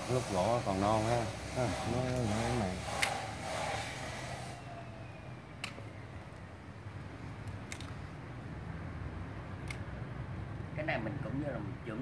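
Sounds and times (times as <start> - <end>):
pruning shears snipping branches: 2.1 - 3.3.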